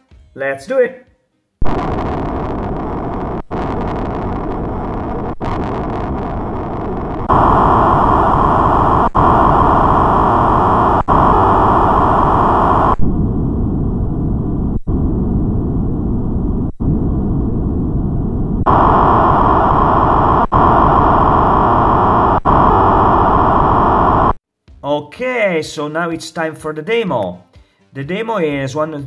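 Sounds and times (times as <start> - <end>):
filtered synthesizer hiss: 1.6 - 24.4.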